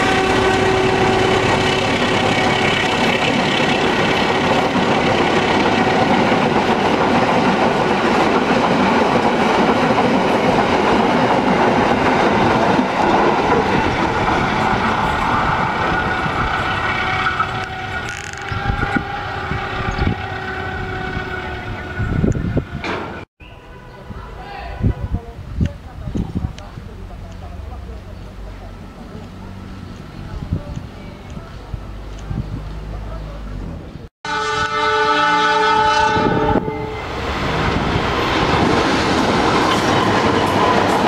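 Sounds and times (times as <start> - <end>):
train wheels rumbling on rail: 0.0 - 23.3, 34.6 - 41.0.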